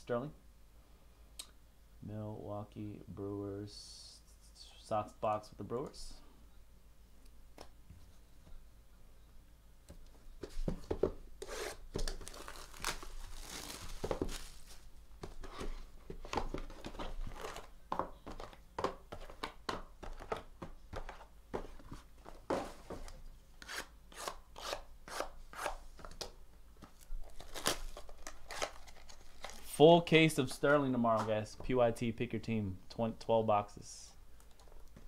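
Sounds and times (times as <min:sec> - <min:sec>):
shrink wrap crinkling and tearing: 0:12.0 - 0:14.9, 0:26.9 - 0:29.8.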